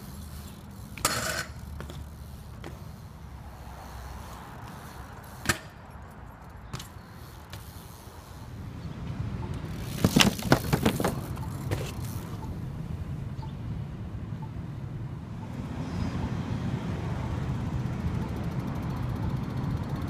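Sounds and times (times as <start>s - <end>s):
bike clanking on concrete: 0.0s - 12.6s
road traffic noise: 0.0s - 20.0s.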